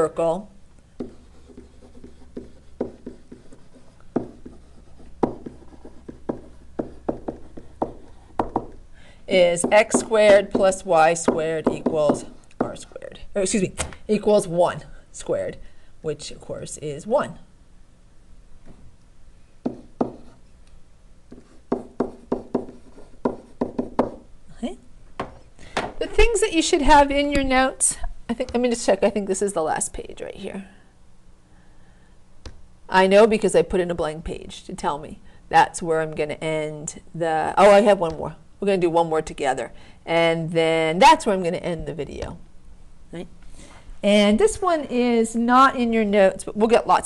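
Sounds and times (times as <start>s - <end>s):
stylus tapping and scratching: 1.0s - 13.0s, 19.6s - 20.5s, 21.3s - 24.3s
stylus tapping on hard surface: 5.2s - 8.8s, 21.3s - 24.2s, 25.2s - 26.0s.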